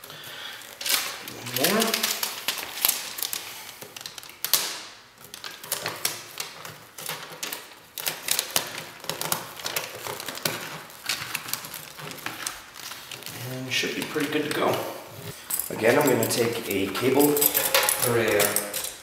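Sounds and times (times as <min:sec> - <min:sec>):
foil crinkling: 0:00.0 - 0:19.0
foil tape ripping: 0:00.4 - 0:14.8.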